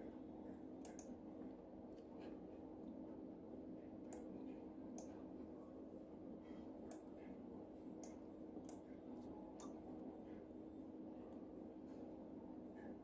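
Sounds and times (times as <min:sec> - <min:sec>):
low electrical hum: 0:00.0 - 0:13.0
computer mouse clicking: 0:00.8 - 0:01.1.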